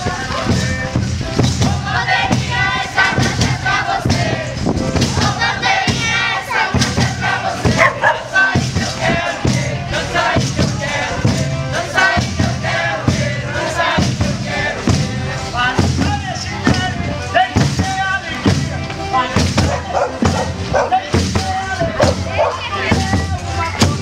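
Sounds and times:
drum beat: 0.0 - 24.0
girls singing a chant: 1.6 - 15.0.

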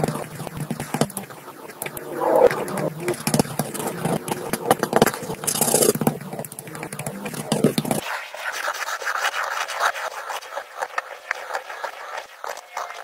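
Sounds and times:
pen scratching across paper: 0.0 - 13.0
pencil scratching on paper: 2.6 - 12.6.

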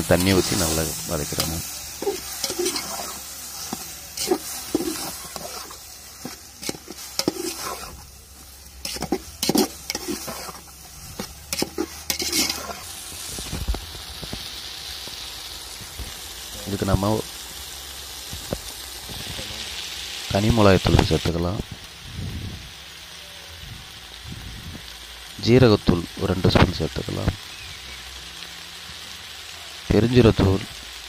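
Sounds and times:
oil sizzling: 0.0 - 31.0
metal ladle scraping a pot: 1.4 - 8.1, 8.8 - 10.7, 11.5 - 12.9.

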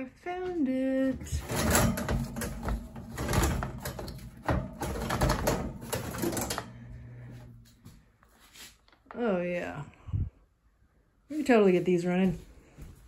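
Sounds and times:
plastic and metal equipment clattering: 1.2 - 6.9.

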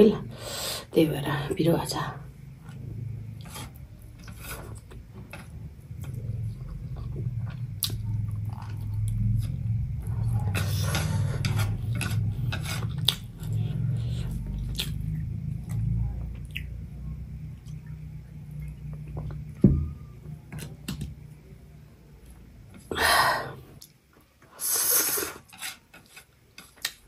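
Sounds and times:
chewing: 3.4 - 16.7.

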